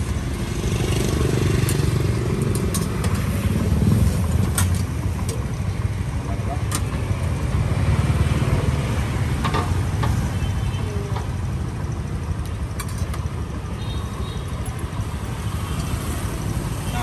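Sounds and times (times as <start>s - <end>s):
motorbikes passing: 0.0s - 12.0s, 13.4s - 17.0s
street traffic rumble: 0.0s - 17.0s.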